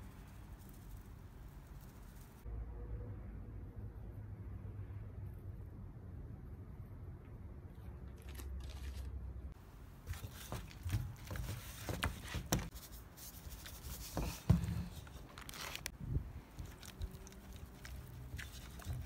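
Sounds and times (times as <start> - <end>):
hands rubbing raw chicken: 16.5 - 19.0.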